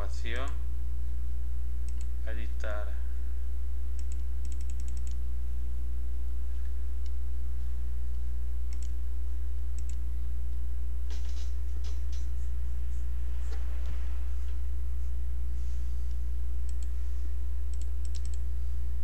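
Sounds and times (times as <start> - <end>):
low electrical hum: 0.0 - 19.0
keyboard and mouse clicks: 1.8 - 2.1, 4.0 - 5.2, 8.7 - 9.0, 9.8 - 10.0, 16.1 - 16.9, 17.7 - 18.4.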